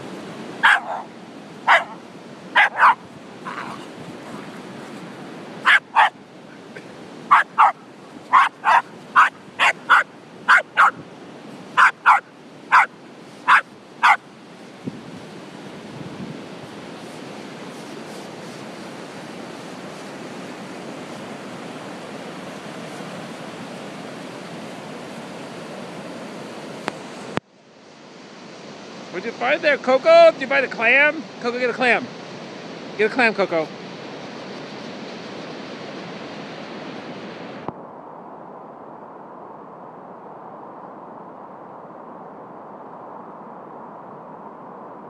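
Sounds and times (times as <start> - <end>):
surf: 0.0 - 45.0
wind: 0.0 - 45.0
small dog barking: 0.6 - 4.5, 5.6 - 6.2, 7.3 - 11.0, 11.8 - 14.2.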